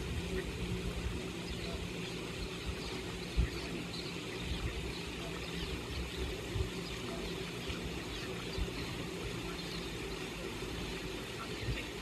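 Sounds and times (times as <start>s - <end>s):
steady low rumble: 0.0s - 12.0s
swallows twittering: 0.2s - 12.0s.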